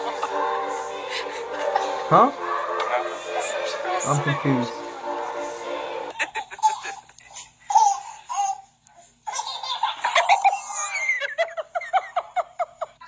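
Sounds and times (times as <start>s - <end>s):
baby laughing: 6.1s - 12.9s.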